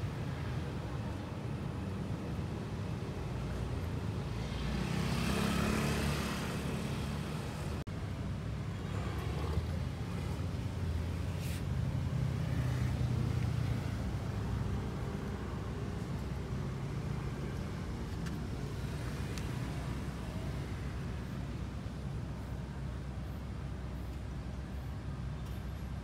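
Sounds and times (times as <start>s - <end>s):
road traffic rumble: 0.0s - 26.0s
vehicle passing: 4.4s - 7.8s.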